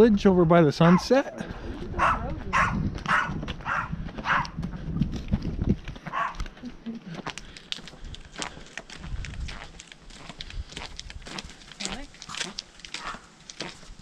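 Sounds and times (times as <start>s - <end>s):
dog barking: 0.8s - 1.2s, 2.0s - 4.6s, 6.1s - 6.4s, 13.0s - 13.3s
footsteps: 0.9s - 14.0s.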